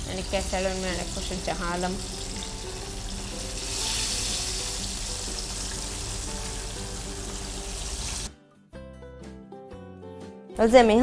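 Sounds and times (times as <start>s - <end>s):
chicken sizzling in hot oil: 0.0s - 8.3s
background music: 0.0s - 11.0s.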